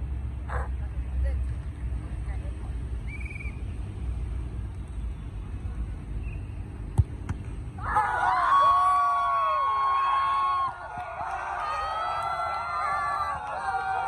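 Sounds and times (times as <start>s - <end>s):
football kicked thud: 6.9s - 7.6s
players shouting and screaming: 7.8s - 14.0s.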